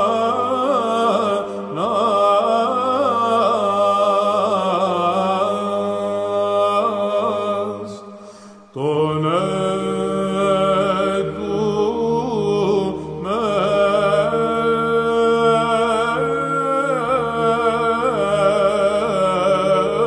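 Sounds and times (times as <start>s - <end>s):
held vocal drone: 0.0s - 20.0s
breath: 1.4s - 1.7s, 8.0s - 8.8s, 12.9s - 13.2s.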